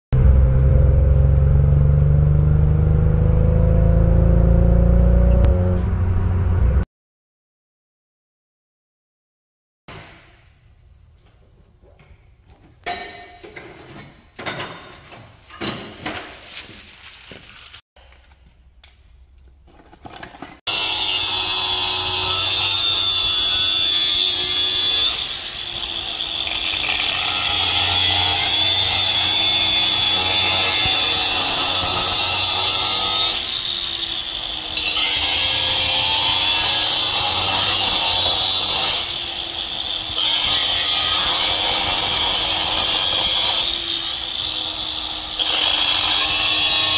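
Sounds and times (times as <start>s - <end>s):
angle grinder cutting metal pipe: 20.7s - 46.9s.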